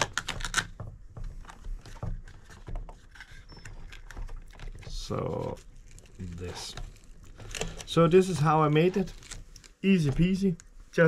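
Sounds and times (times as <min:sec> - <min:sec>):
sharp clicks and knocks: 0:00.0 - 0:06.1.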